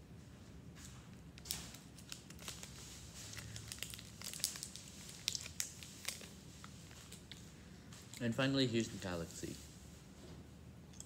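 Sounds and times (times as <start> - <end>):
wrapper crinkling and tearing: 1.4 - 7.4.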